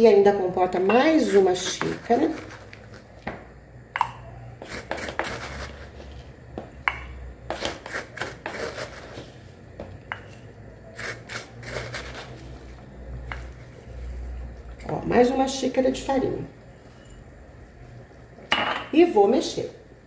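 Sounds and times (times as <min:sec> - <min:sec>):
low steady hum: 0:00.0 - 0:20.0
cup scraping through flour: 0:01.2 - 0:03.0, 0:04.6 - 0:06.3, 0:07.5 - 0:09.5, 0:10.9 - 0:12.8.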